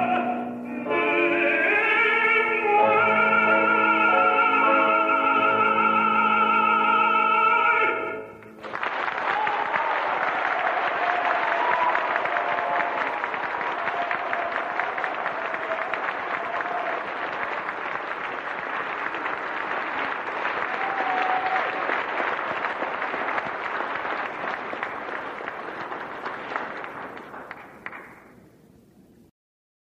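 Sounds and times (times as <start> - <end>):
audience applauding: 8.4 - 28.5.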